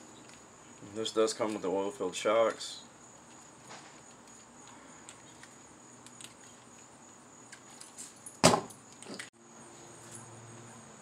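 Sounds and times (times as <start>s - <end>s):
high insect chirr: 0.0s - 11.0s
toy truck thump on table: 8.4s - 8.8s.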